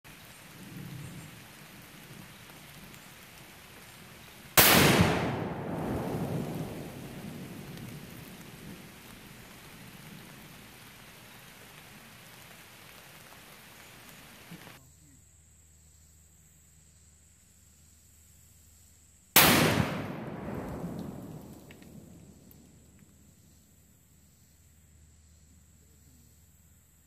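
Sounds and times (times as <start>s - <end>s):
loud explosive blast: 4.6s - 7.6s, 19.4s - 22.2s.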